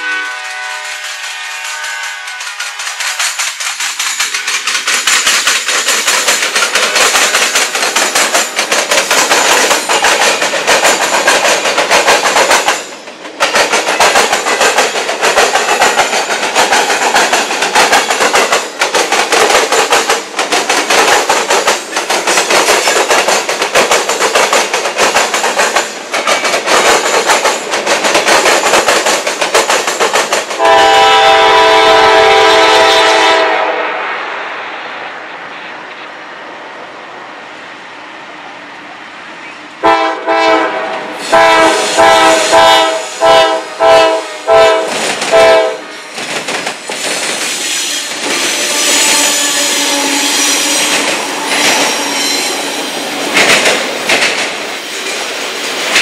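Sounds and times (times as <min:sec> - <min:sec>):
locomotive air horn: 0:00.0 - 0:03.4, 0:30.6 - 0:34.1, 0:39.8 - 0:46.1, 0:47.8 - 0:52.8
freight train passing: 0:00.0 - 0:56.0
steel wheels clattering over rails: 0:00.8 - 0:31.7, 0:41.2 - 0:56.0.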